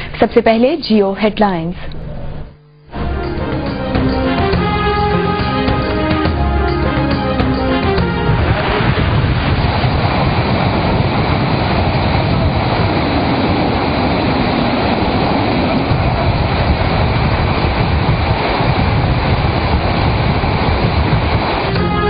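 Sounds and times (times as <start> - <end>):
deep rumble: 3.0 - 22.0
floodwater rushing: 3.0 - 22.0.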